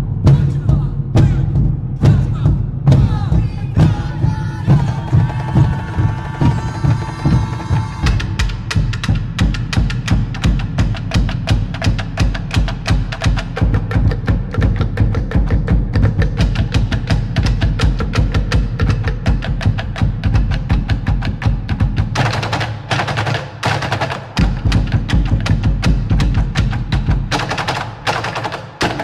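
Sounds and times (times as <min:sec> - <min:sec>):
soundtrack music with drumming: 0:00.0 - 0:29.0
held high tone: 0:04.2 - 0:08.5.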